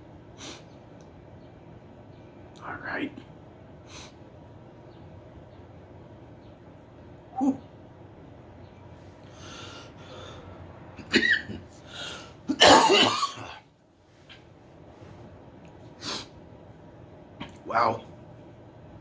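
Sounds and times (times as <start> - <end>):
breathy exhales: 9.2 - 10.7
man coughing: 11.0 - 11.6, 12.5 - 13.6.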